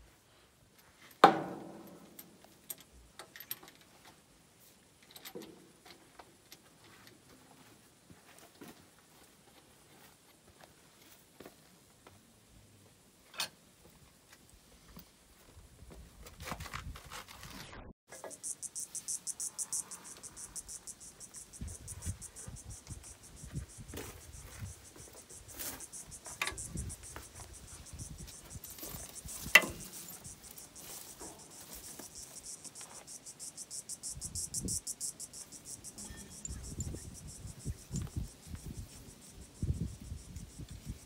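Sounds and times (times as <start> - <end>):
sharp metallic knock: 1.2 - 2.0
insects buzzing: 18.1 - 41.0
hand tools clanking and clicking: 28.2 - 32.1.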